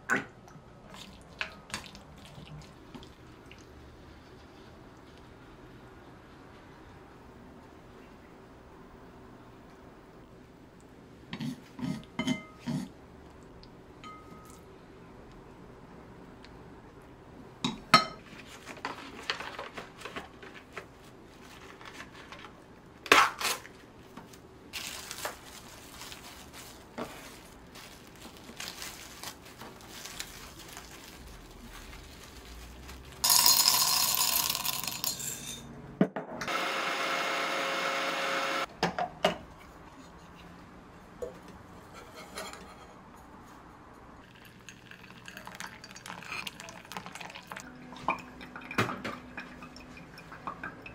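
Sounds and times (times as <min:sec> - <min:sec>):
dishes clinking: 0:12.2 - 0:12.8, 0:14.0 - 0:14.6
plastic cling wrap crinkling: 0:18.4 - 0:33.9
coffee beans rattling into grinder: 0:33.2 - 0:35.4.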